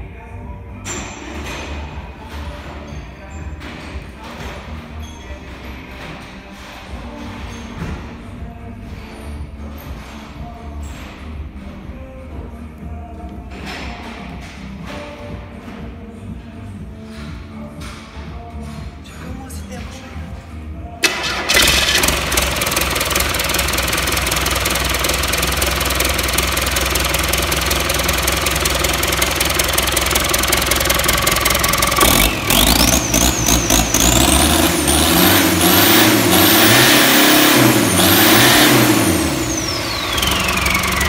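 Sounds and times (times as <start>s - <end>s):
diesel engine running and revving: 21.0s - 41.0s
turbo whine: 38.5s - 41.0s.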